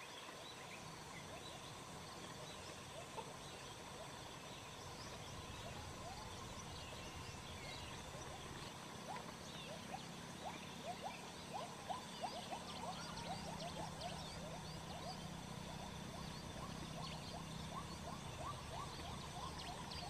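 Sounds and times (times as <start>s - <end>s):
faint low hum: 0.0s - 20.0s
small animals chirping: 7.4s - 20.0s.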